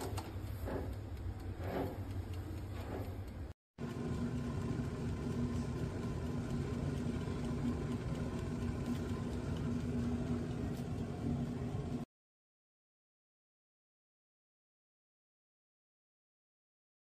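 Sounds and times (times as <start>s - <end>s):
steamer hum: 0.0s - 12.1s
water boiling in food steamer: 0.0s - 12.1s.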